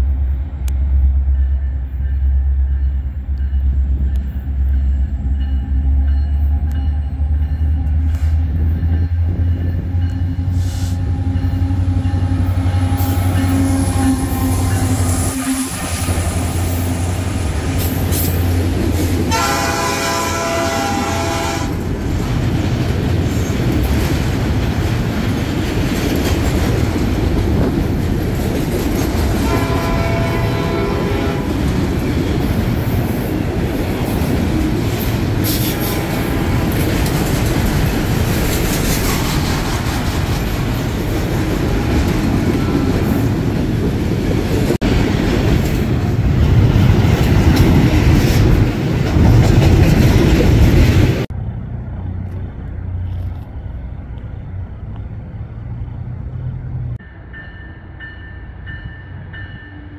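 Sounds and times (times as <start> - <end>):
locomotive engine: 0.0 - 28.6, 48.5 - 57.3
train wheels rumbling on rails: 0.0 - 59.9.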